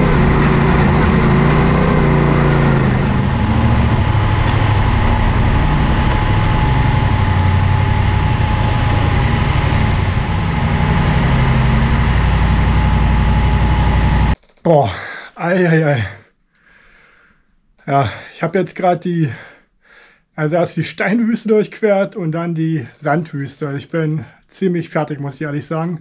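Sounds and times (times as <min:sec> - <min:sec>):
motorcycle engine running: 0:00.0 - 0:14.4.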